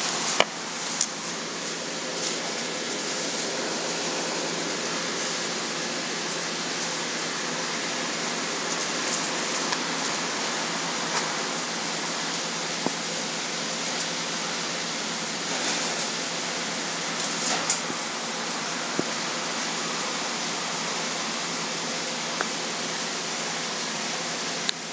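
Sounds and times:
steady hiss: 0.0s - 24.9s.

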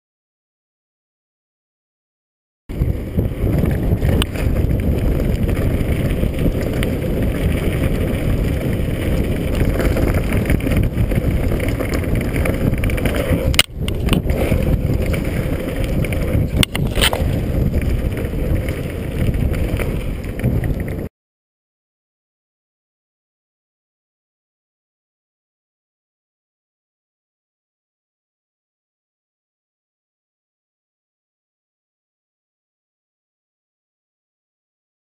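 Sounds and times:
bike tyres rumbling on dirt: 2.7s - 21.1s
wind buffeting microphone: 2.7s - 21.1s.

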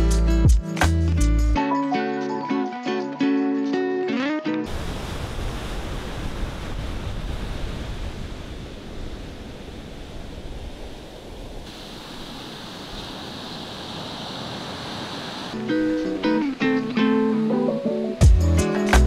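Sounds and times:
sea waves breaking: 4.6s - 17.8s
surf hissing over sand: 4.6s - 18.2s
wind rumbling on microphone: 4.7s - 15.6s.

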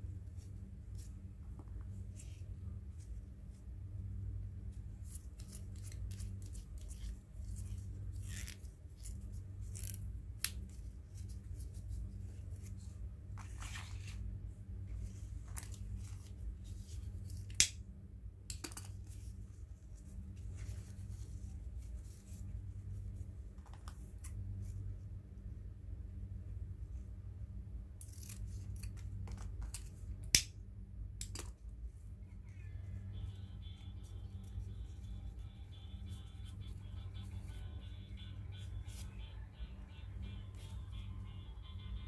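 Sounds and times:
steady low hum: 0.0s - 42.0s
ribbon rustling and crinkling: 4.6s - 14.3s, 14.9s - 17.5s.

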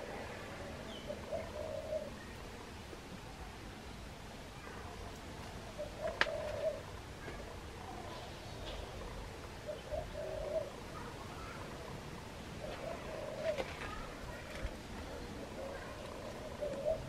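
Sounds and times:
dove cooing: 0.0s - 2.6s, 5.7s - 7.0s, 7.7s - 17.0s.

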